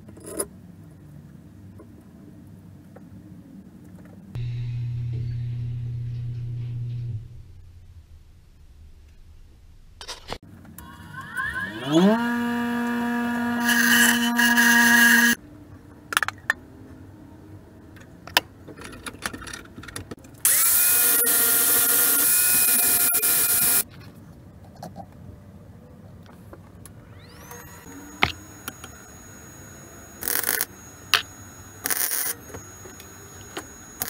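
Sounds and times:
power tool motor whine: 10.8 - 15.4, 20.4 - 23.8, 27.1 - 34.0.

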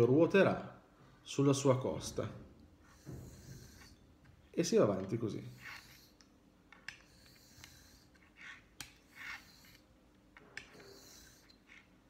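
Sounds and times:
razor clicking on stone: 2.8 - 4.0, 4.9 - 12.0
razor scraping on stone: 2.8 - 12.0.

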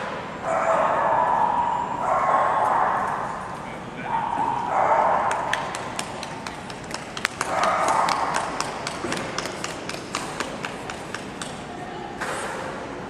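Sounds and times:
footsteps tapping on hard floor: 5.5 - 11.6.

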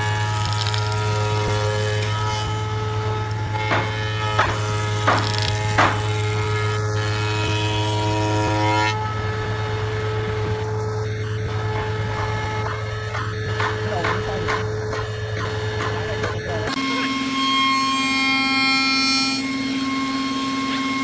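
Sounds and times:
wood rasps: 0.0 - 7.9
cutter whine: 0.0 - 21.0
machine hum: 0.0 - 21.0.

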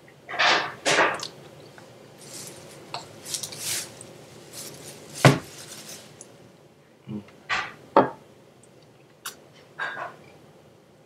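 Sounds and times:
cutlery scuffing: 2.2 - 6.2.

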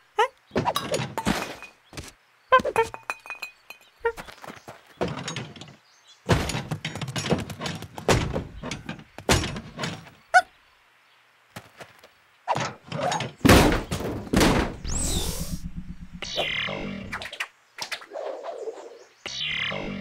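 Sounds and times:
cartoon thuds and clattering knocks: 5.0 - 10.1, 12.5 - 16.5.

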